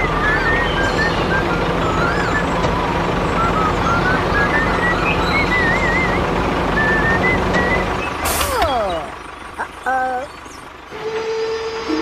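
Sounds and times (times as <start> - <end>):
whistle-like melody: 0.0 - 8.2
engine-like running noise: 0.0 - 12.0.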